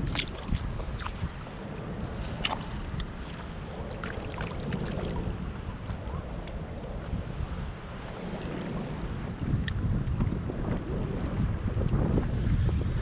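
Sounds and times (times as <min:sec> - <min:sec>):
water lapping against hull: 0:00.0 - 0:13.0
wind rumbling on microphone: 0:00.0 - 0:13.0.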